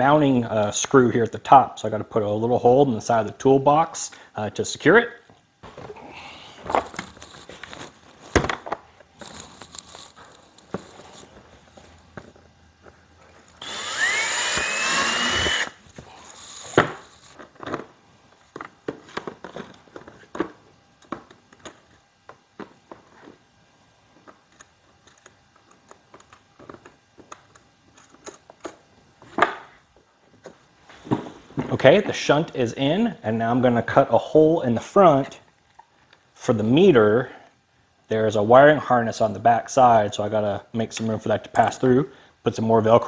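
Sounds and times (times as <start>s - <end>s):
cordless drill whining: 13.6s - 15.8s.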